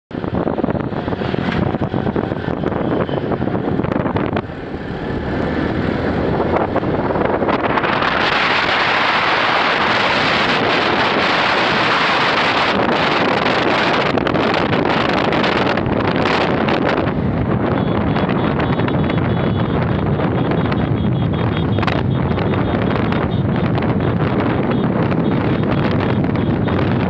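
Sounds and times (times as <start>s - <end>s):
motorcycle road noise: 0.1s - 27.0s
wind buffeting microphone: 0.1s - 27.0s.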